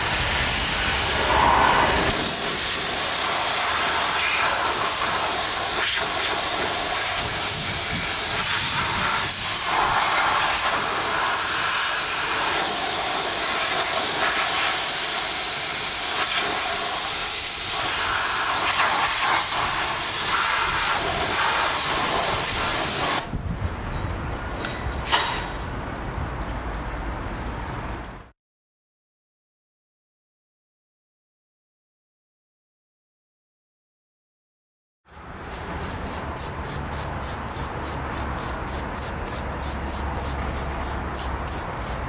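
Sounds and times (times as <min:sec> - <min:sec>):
pressure washer jet hissing: 0:00.0 - 0:23.2, 0:35.4 - 0:42.0.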